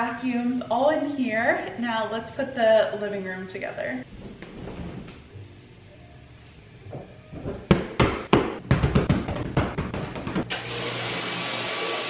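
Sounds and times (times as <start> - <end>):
knocks and thumps: 6.9 - 10.5
vacuum cleaner whining: 10.5 - 12.0.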